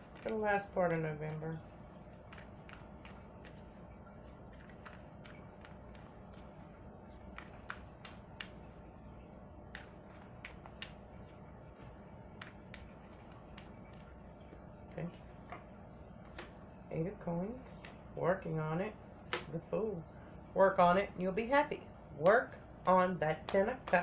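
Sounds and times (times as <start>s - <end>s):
cards being shuffled: 0.0s - 8.9s, 9.6s - 16.6s
faint steady hum: 0.0s - 24.0s.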